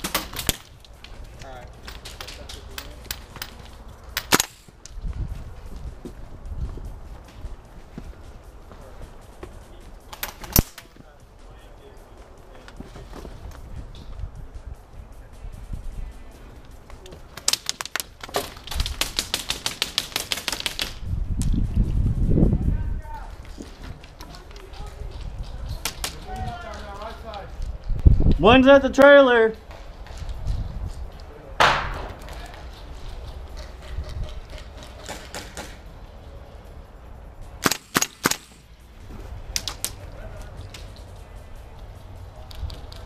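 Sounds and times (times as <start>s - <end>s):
airsoft rifle shots: 4.2s - 4.7s, 31.6s - 32.2s, 37.6s - 38.7s
airsoft gunfire clacks: 18.7s - 21.0s, 37.6s - 38.6s.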